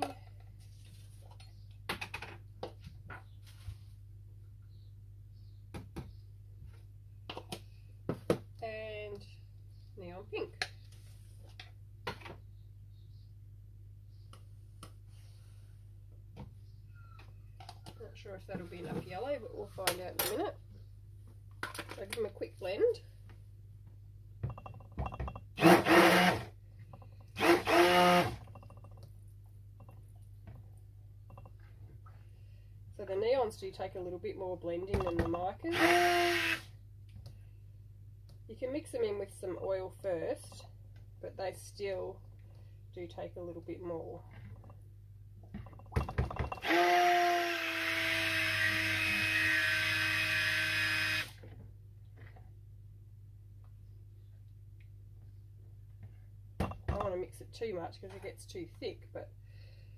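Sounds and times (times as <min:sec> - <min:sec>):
stick blender running: 0:25.6 - 0:26.5, 0:27.3 - 0:28.6, 0:35.7 - 0:36.7, 0:46.6 - 0:51.4.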